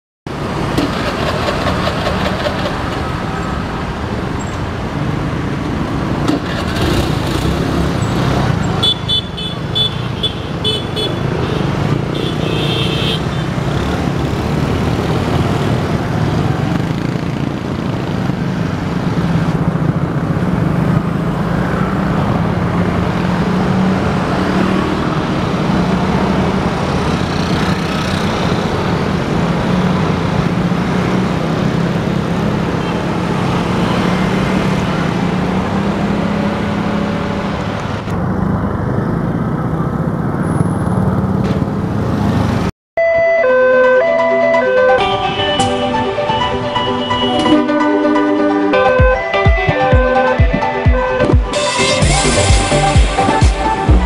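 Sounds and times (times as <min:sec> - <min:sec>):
traffic engine hum: 0:00.3 - 0:42.7
horn toot: 0:43.9 - 0:54.0.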